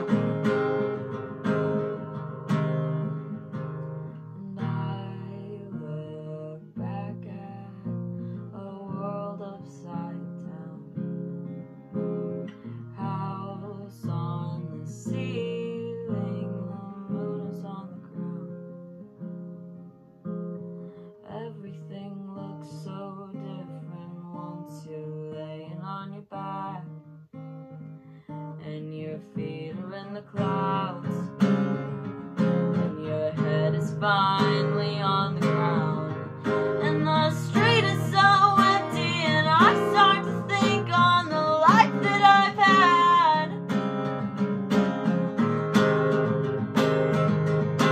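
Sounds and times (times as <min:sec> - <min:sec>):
acoustic guitar strumming: 0:00.0 - 0:05.9, 0:29.3 - 0:47.9
person singing wordlessly: 0:04.4 - 0:07.9, 0:08.5 - 0:11.0, 0:13.0 - 0:18.6, 0:21.2 - 0:27.0, 0:28.6 - 0:31.8, 0:32.7 - 0:43.7.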